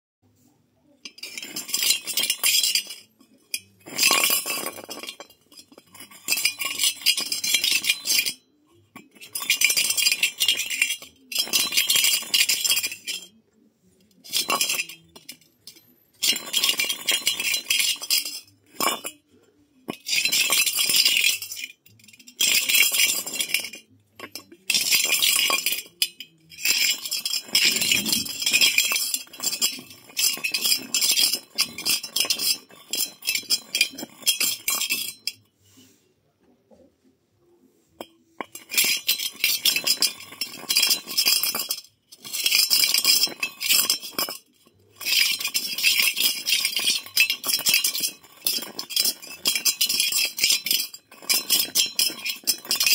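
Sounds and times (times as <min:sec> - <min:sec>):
metal ball scraping on concrete: 0:00.3 - 0:36.1, 0:37.6 - 0:52.9.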